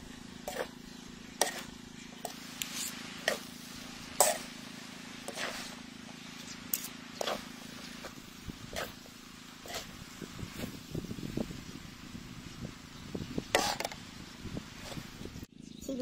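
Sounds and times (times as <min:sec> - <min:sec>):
steady low hum: 0:00.0 - 0:16.0
metal utensils scraping a wok: 0:01.4 - 0:04.6, 0:05.3 - 0:05.8, 0:09.6 - 0:10.7, 0:13.5 - 0:14.0.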